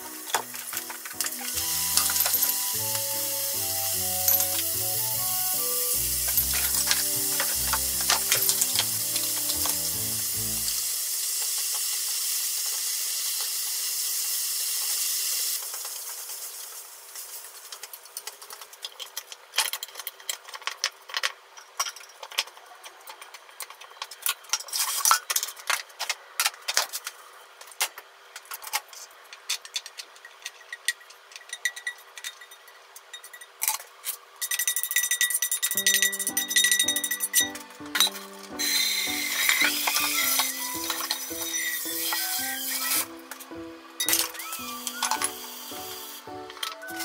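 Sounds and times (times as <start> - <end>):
meat sizzling in a frying pan: 0.1 - 17.8, 38.4 - 43.2, 44.3 - 47.0.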